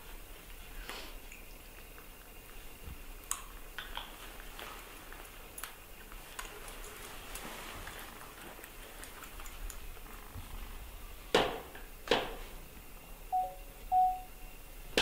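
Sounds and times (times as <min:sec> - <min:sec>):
soft rustling on fabric: 0:04.1 - 0:10.9.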